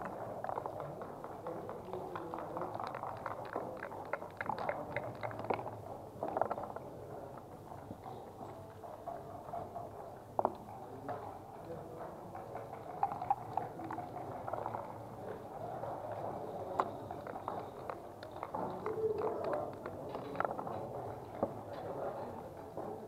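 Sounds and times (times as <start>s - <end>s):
game checkers clicking on board: 0.0s - 6.7s
soft background murmur: 0.0s - 23.0s.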